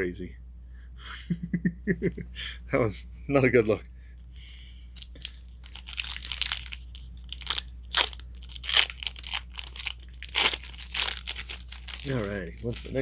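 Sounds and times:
plastic packaging crinkling: 0:05.0 - 0:13.0.

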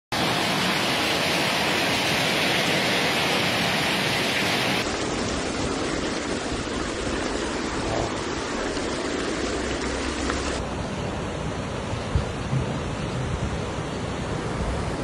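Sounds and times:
heavy rain pouring: 0:00.1 - 0:11.6.

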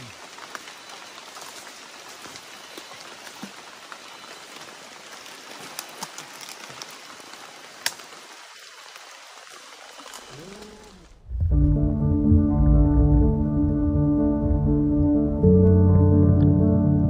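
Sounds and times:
rain hiss: 0:00.0 - 0:11.5.

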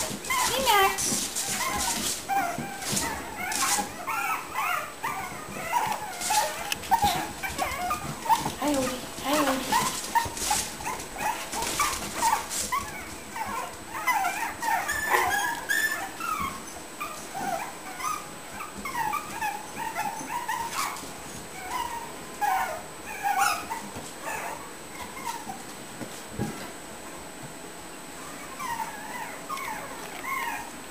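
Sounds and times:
rustling: 0:00.0 - 0:21.9
puppies whimpering and yipping: 0:00.0 - 0:25.8, 0:28.2 - 0:30.9.

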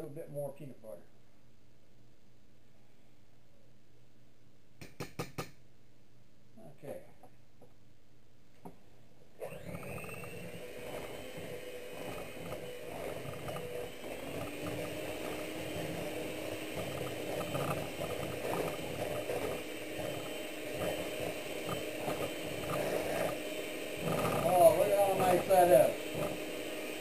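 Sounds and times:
electric hand mixer running: 0:09.4 - 0:27.0.

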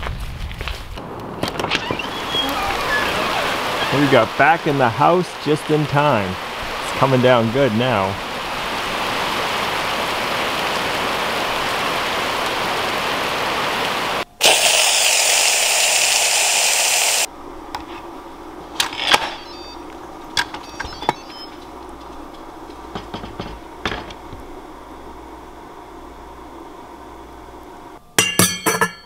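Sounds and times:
heavy rain: 0:01.0 - 0:28.0
steam hissing from valve: 0:14.4 - 0:17.3
lid clicks and knocks: 0:22.9 - 0:24.2.

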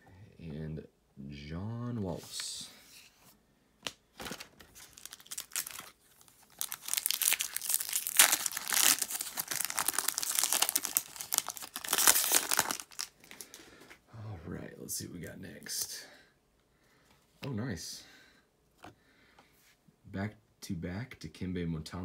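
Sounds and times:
foil wrapper tearing and crinkling: 0:04.3 - 0:13.5.

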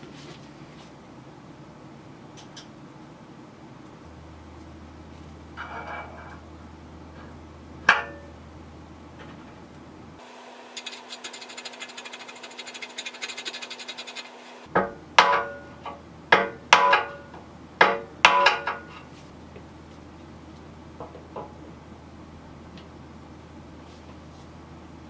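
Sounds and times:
hammer striking metal rod: 0:14.8 - 0:18.9.

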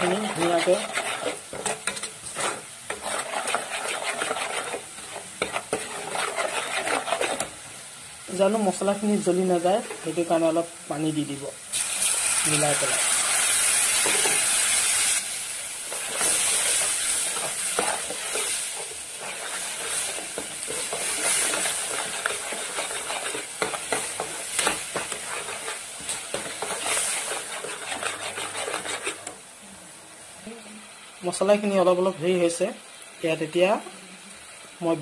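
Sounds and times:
spoon scraping a pan: 0:00.0 - 0:07.6, 0:13.8 - 0:14.6, 0:15.9 - 0:29.4
masala sizzling in a pan: 0:00.0 - 0:35.0.

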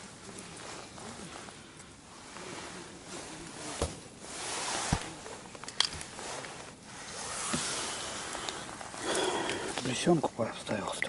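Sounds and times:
fabric and clothing rustling: 0:00.0 - 0:10.4.

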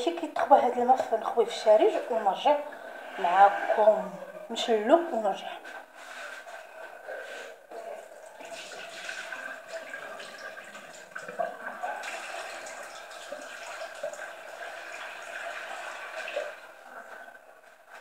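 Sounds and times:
tap water running and splashing: 0:08.2 - 0:18.0.

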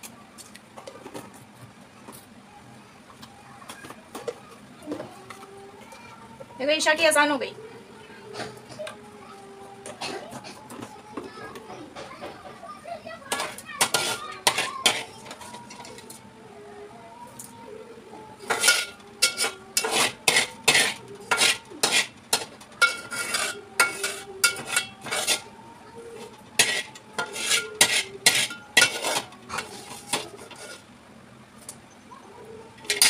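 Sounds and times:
metal spatula scraping frying pan: 0:13.3 - 0:16.1, 0:18.4 - 0:25.6, 0:26.2 - 0:30.9.

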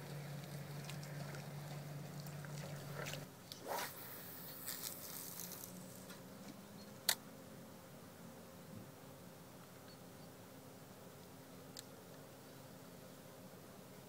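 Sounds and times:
short hissing rush: 0:03.6 - 0:06.0.

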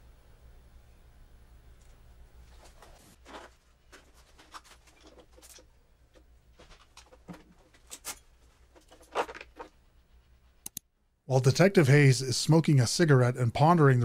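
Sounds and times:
soft rustling: 0:02.4 - 0:10.5.

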